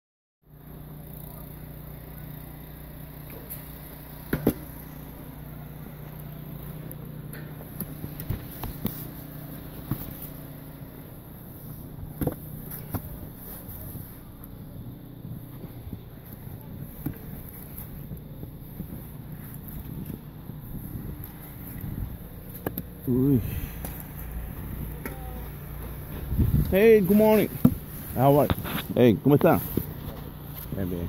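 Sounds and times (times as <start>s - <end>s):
low mechanical hum: 0.5s - 31.0s.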